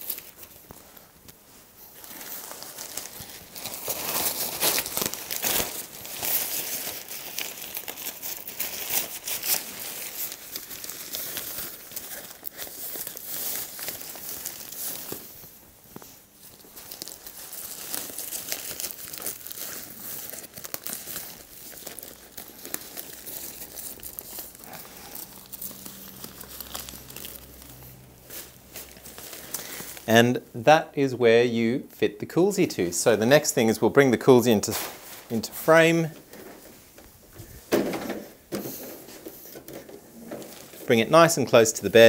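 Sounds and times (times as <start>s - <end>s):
nylon fabric rustling: 0.0s - 30.1s
velcro ripping: 2.0s - 15.3s, 16.5s - 30.1s.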